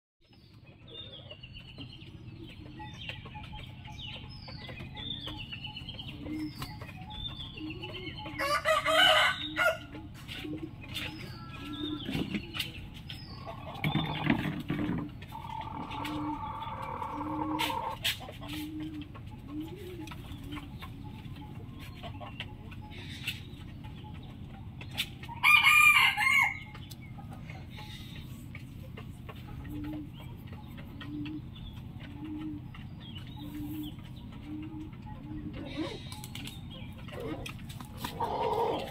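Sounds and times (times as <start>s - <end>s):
rooster crowing: 8.4s - 9.8s, 25.4s - 26.7s.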